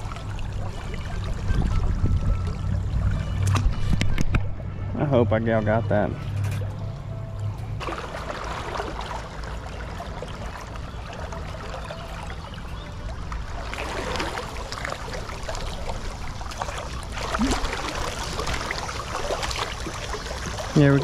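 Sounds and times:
river water rushing: 13.4 - 21.0.

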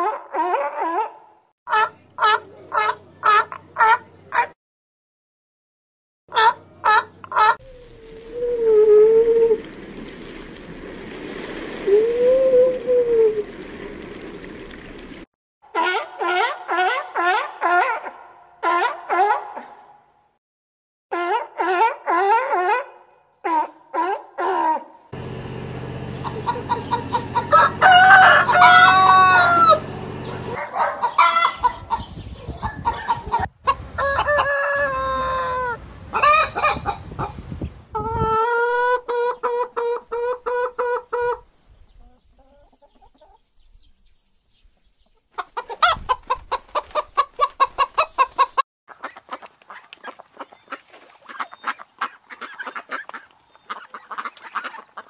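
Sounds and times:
roosters crowing: 24.4 - 32.0, 32.8 - 37.3
hens clucking: 25.3 - 37.4, 38.0 - 41.4, 45.3 - 55.0.

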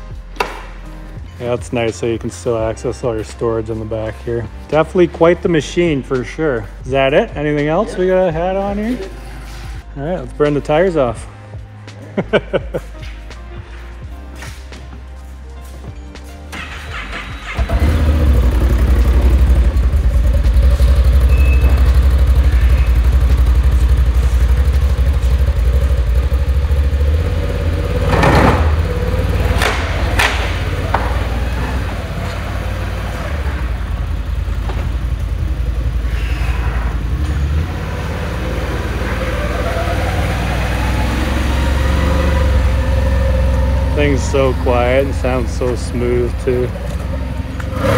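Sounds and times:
atv engine starting and running: 16.5 - 47.9.

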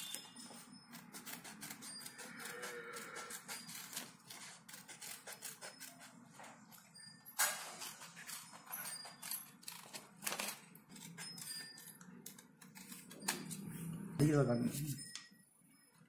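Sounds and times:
scissors snipping paper: 0.0 - 6.2, 7.8 - 13.6.

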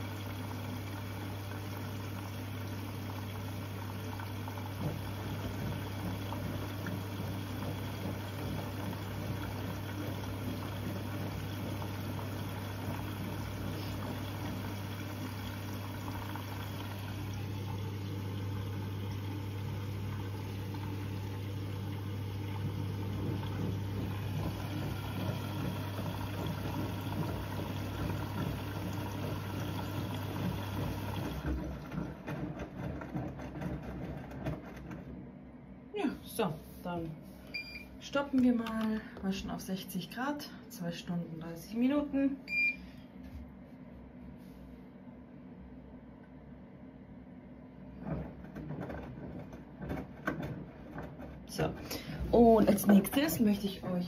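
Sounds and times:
water splashing into drum: 4.1 - 34.6.

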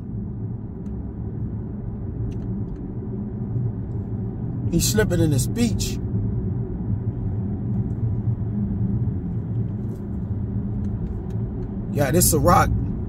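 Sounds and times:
car interior engine and tyre rumble: 0.0 - 13.0.

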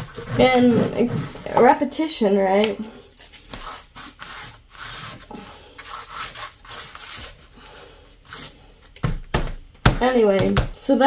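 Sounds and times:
pastel stick scratching paper: 0.0 - 1.6, 3.6 - 7.4.

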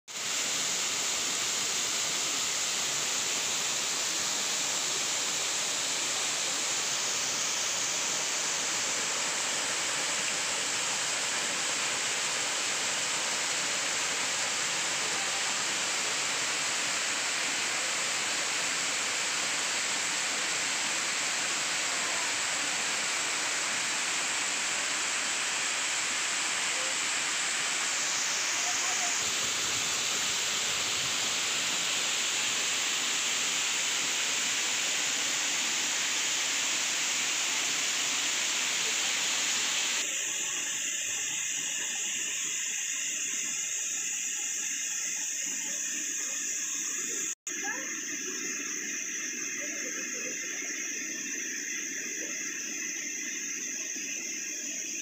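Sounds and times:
waterfall rushing: 0.3 - 41.3.

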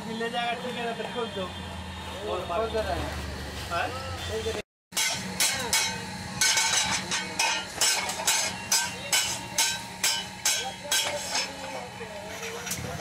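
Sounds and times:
hammer striking hot iron on anvil: 4.9 - 11.8.

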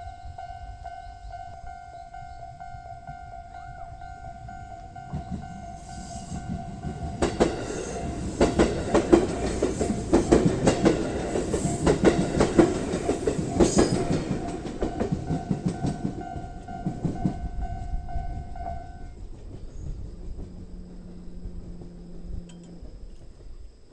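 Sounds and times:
level crossing warning bell: 0.0 - 19.3, 20.3 - 23.2
train wheels clacking over rail joints: 5.1 - 18.0.

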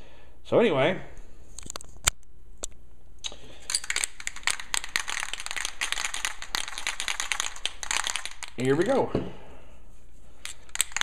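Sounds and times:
rapid irregular clicking and crackling: 3.9 - 8.7.

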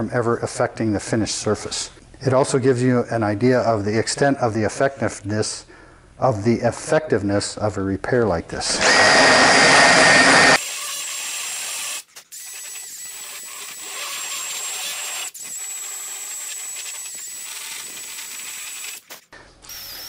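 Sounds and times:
burr grinding wood: 8.8 - 10.6
drill motor whine: 8.8 - 19.0, 19.7 - 20.0.

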